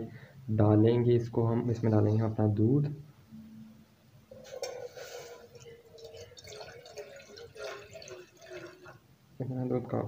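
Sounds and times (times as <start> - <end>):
milk pouring into metal saucepan: 4.3 - 9.1.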